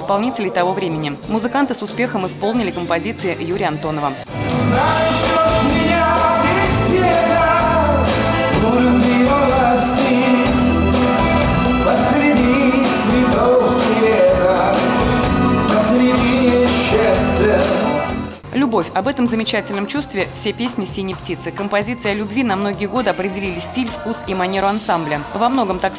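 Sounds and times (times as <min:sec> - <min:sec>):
drums: 0:00.0 - 0:25.9
electric bass: 0:02.0 - 0:19.6
man singing: 0:03.7 - 0:18.3, 0:22.2 - 0:25.6.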